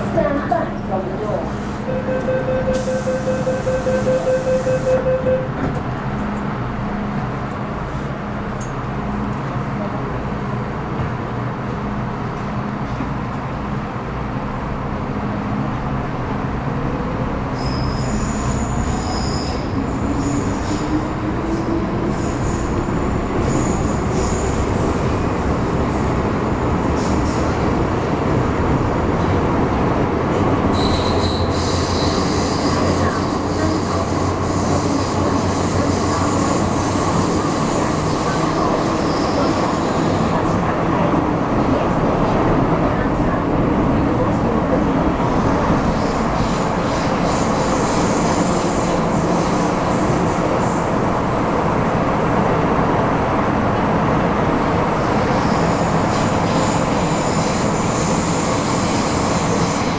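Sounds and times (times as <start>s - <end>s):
wheels rumbling on rail: 0.0s - 59.9s
high wheel squeals: 17.6s - 21.0s, 30.7s - 33.8s.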